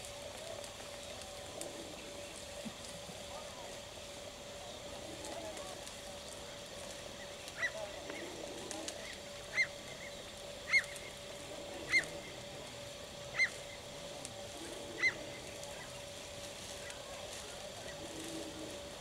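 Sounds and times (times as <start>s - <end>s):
faint steady hum: 0.0s - 19.0s
bird calling: 7.2s - 13.9s, 14.6s - 16.0s.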